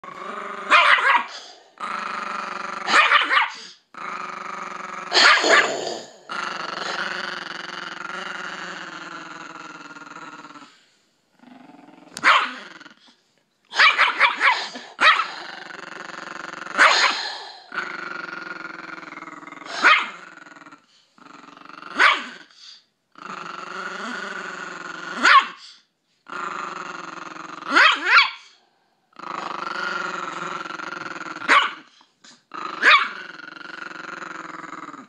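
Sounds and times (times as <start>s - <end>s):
dog growling: 0.0s - 10.8s, 11.4s - 13.1s, 14.4s - 22.5s, 23.2s - 25.3s, 29.2s - 31.6s, 32.3s - 35.0s
dog barking: 0.7s - 1.3s, 2.9s - 3.6s, 12.2s - 12.6s, 13.8s - 15.3s, 22.0s - 22.3s, 25.2s - 25.6s, 27.7s - 28.4s, 31.5s - 31.9s, 32.8s - 33.1s.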